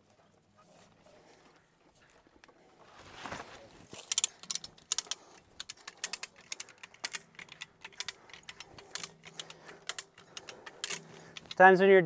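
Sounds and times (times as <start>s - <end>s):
metallic ratchet clicks: 4.0s - 11.8s.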